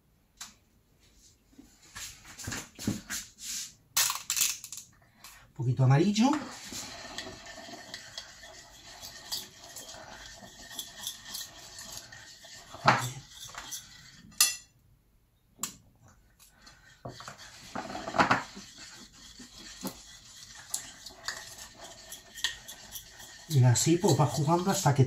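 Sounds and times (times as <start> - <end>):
metal spoon scraping porcelain plate: 6.3 - 14.7, 16.6 - 25.0.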